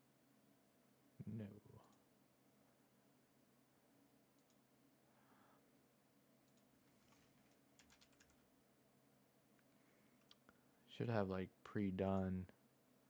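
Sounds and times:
keyboard typing: 6.5s - 8.4s.

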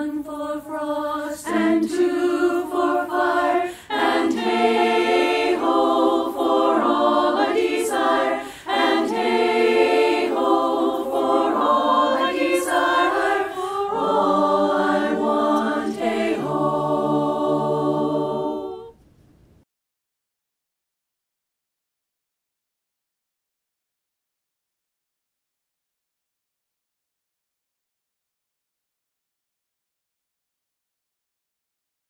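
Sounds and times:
women's chorus singing a cappella: 0.0s - 19.0s.

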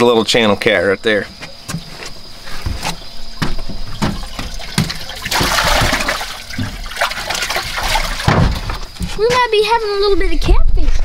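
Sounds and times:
water splashing: 1.4s - 9.3s
knocks on metal deck: 2.6s - 6.0s, 8.2s - 9.4s.

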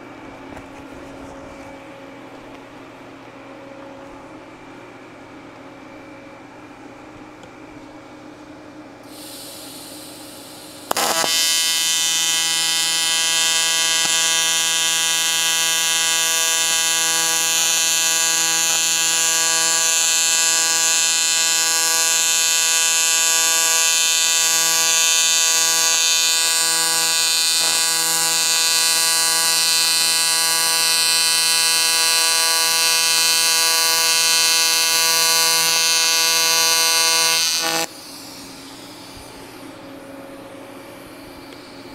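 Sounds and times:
welding arc electric buzz: 9.1s - 39.9s.

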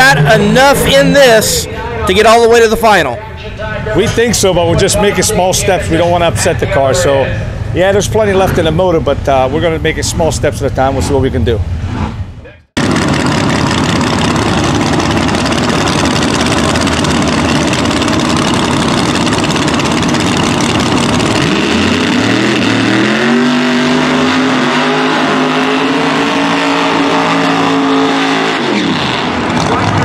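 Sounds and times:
drag car engines rumbling: 0.0s - 30.0s
engine revving high: 12.8s - 30.0s.

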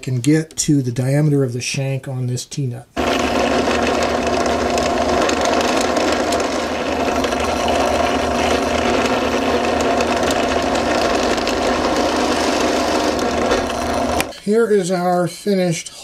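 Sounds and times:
drill press drilling into wood: 3.0s - 14.4s.

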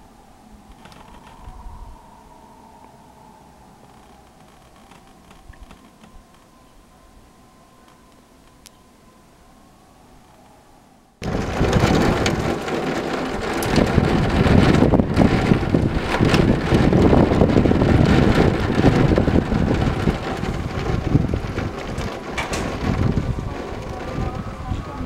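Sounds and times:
gusty wind on microphone: 0.0s - 6.3s, 11.2s - 25.0s
heavy rain and hail: 11.2s - 25.0s.

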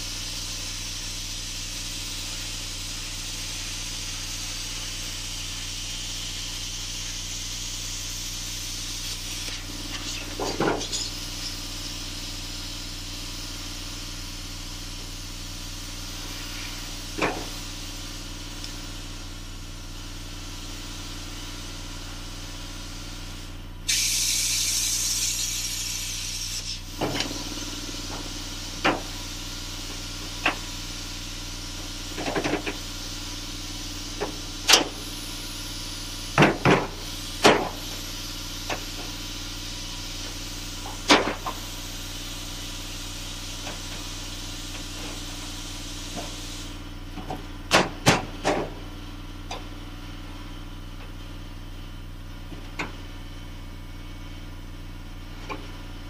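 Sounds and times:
air hiss: 0.0s - 19.2s, 23.2s - 46.8s
plasma cutter arc hissing: 0.0s - 19.7s, 23.0s - 46.8s.

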